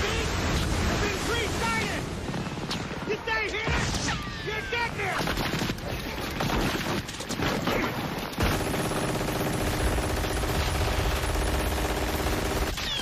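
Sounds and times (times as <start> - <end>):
machine-gun fire: 8.4 - 13.0.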